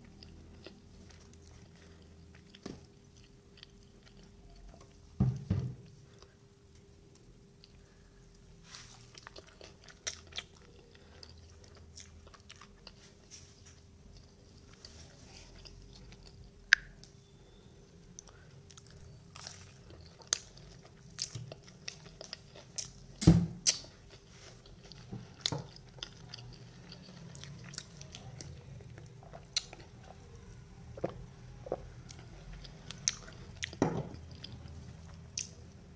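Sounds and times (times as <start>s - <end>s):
person chewing fried food: 0.0s - 5.1s, 7.1s - 17.6s, 18.2s - 35.8s
thump: 5.2s - 5.8s, 23.2s - 23.6s.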